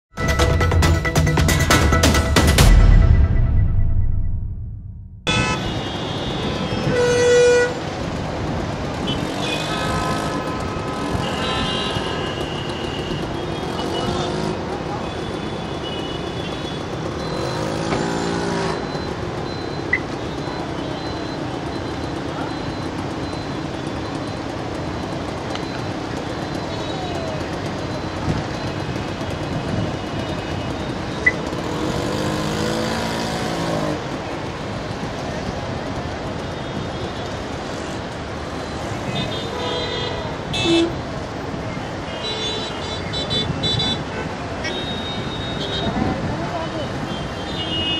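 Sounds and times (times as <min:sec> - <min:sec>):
traffic jam noise: 0:00.1 - 0:03.4, 0:05.2 - 0:47.9
vehicle horns honking: 0:05.2 - 0:08.0, 0:09.0 - 0:18.9, 0:38.6 - 0:41.3, 0:41.9 - 0:46.2, 0:46.9 - 0:47.9
car engines running: 0:07.8 - 0:42.2.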